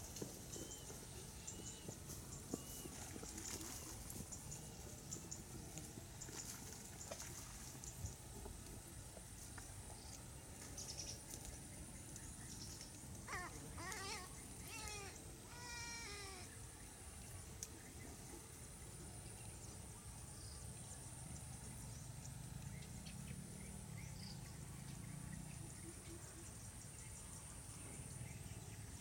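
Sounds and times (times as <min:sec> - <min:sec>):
harsh bleating bird calls: 0:13.3 - 0:16.6.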